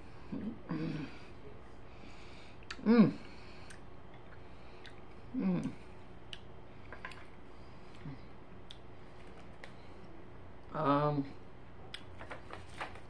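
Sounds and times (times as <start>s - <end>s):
woman humming: 0.3s - 1.2s, 2.7s - 3.3s, 5.3s - 5.8s.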